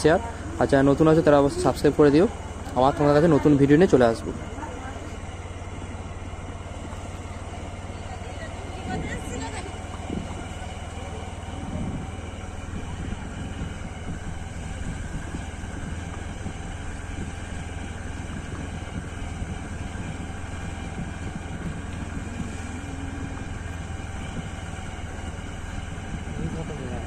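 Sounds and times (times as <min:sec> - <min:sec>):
motorcycle engine running: 0:00.0 - 0:27.0
wind noise on microphone: 0:08.0 - 0:27.0.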